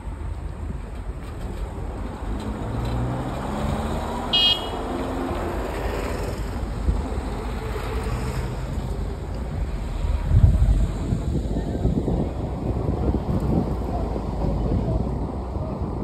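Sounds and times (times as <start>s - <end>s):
car engine and tyre noise: 0.0s - 16.0s
car horn toot: 4.3s - 4.8s.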